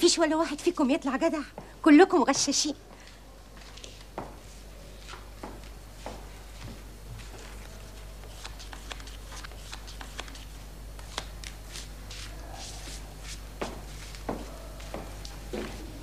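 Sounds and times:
steady low hum: 0.0 - 16.0
playing cards clicking and slapping: 8.2 - 12.3.

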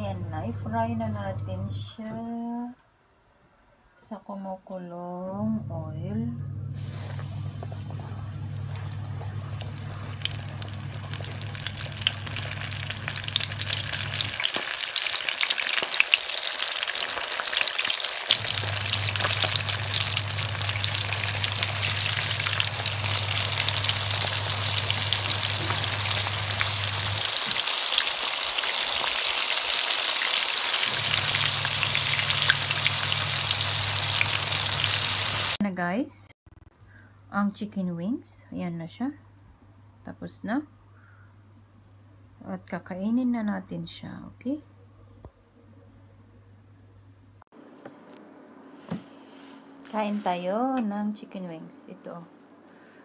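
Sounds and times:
low hum: 5.3 - 14.4, 18.4 - 27.4
chicken frying in hot oil: 8.4 - 35.6.

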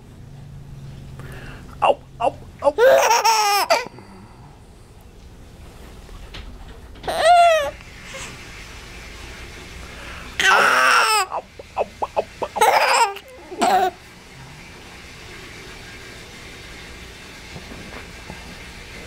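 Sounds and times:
baby laughing and squealing: 1.8 - 3.9, 7.1 - 8.3, 10.4 - 14.0.

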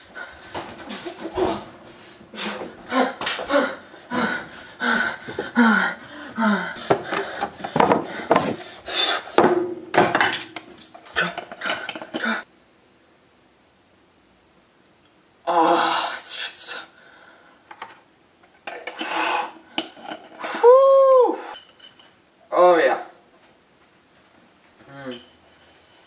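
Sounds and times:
household objects clattering: 6.8 - 8.7, 9.3 - 12.4.

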